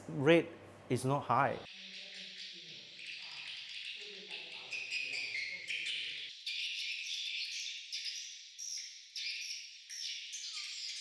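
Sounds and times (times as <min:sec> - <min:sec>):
swiftlets twittering: 0:01.7 - 0:08.8.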